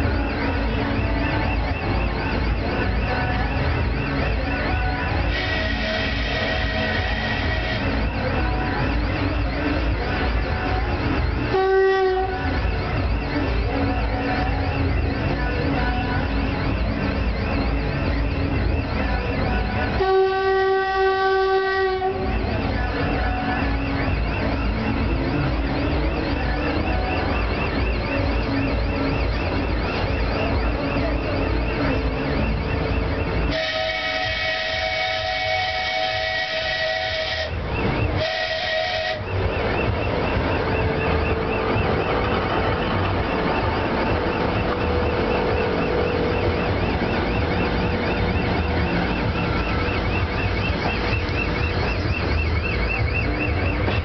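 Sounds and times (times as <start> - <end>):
diesel locomotive engine running: 0.0 - 54.0
locomotive horn blasts: 4.8 - 9.7, 11.1 - 13.4, 18.8 - 24.6, 33.2 - 54.0.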